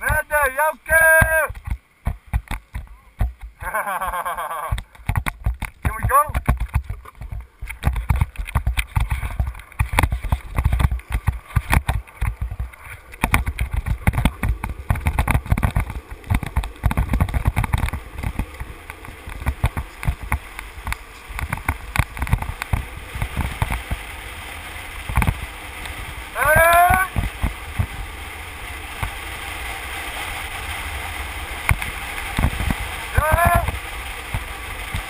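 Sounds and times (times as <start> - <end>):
wheels rolling over asphalt: 0.0 - 35.0
knocks and rattles: 4.7 - 24.0
wind buffeting microphone: 4.8 - 35.0.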